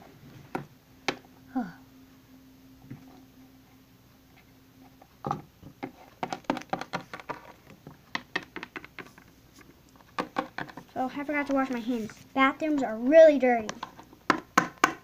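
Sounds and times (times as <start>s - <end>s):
plastic toy tapping on tabletop: 10.2s - 10.7s.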